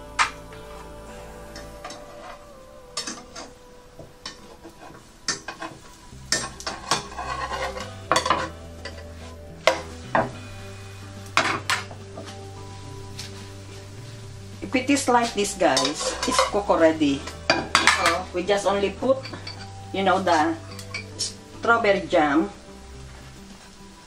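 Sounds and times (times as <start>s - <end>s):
batter sizzling: 0.0s - 24.0s
metal spatula scraping frying pan: 4.2s - 10.4s, 11.0s - 13.8s, 14.7s - 21.5s.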